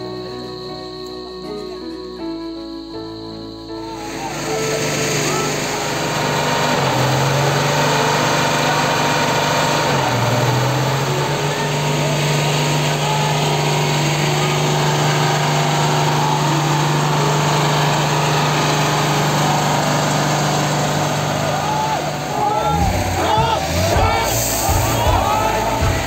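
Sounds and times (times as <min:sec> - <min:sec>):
vehicle engine running: 0:00.0 - 0:26.0
dense hiss: 0:23.0 - 0:26.0.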